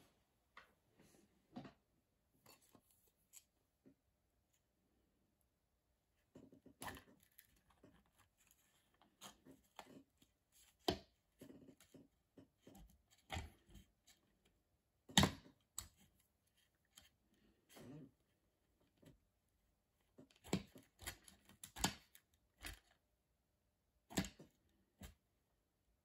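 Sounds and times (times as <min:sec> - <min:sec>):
plastic parts clicking and knocking: 0:20.1 - 0:23.0.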